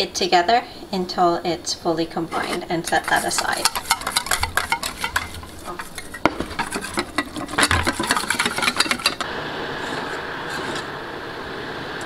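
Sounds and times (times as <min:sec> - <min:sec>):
whisk beating in metal bowl: 0:02.3 - 0:10.9
steady hiss: 0:04.9 - 0:12.0.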